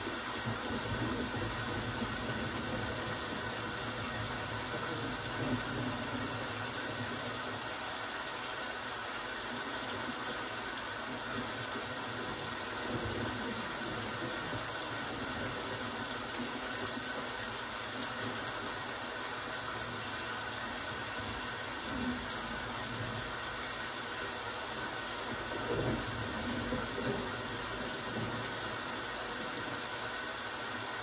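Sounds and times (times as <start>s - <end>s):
steady rain falling: 0.0s - 31.0s.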